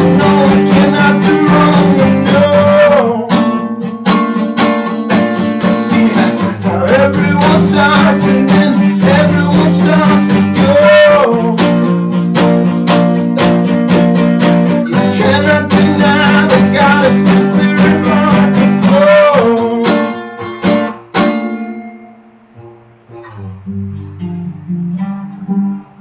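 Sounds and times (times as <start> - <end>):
man singing: 0.0 - 12.3, 14.6 - 20.4
acoustic guitar strumming: 0.0 - 26.0.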